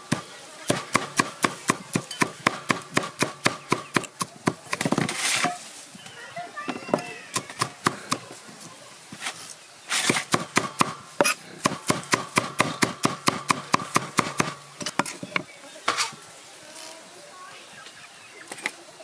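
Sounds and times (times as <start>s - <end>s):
cleaver chopping on wooden block: 0.1s - 5.6s, 10.0s - 15.2s.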